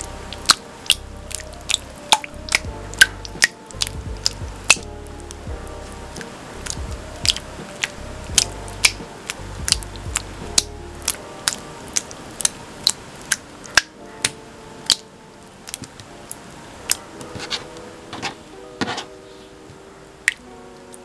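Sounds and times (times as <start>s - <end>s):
slime squelching and clicking: 6.6s - 15.0s, 15.7s - 16.1s.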